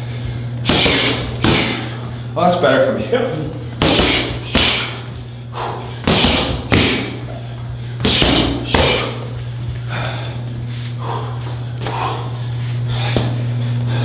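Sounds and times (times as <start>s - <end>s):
steady low hum: 0.0s - 14.0s
kicks landing in sharp smacks: 0.6s - 1.8s, 3.8s - 4.9s, 6.0s - 7.2s, 8.0s - 9.1s.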